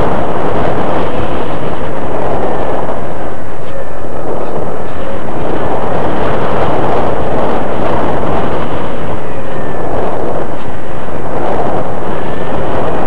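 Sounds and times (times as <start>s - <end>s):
faint motor whine: 0.0s - 13.0s
propeller and airflow rushing: 0.0s - 13.0s.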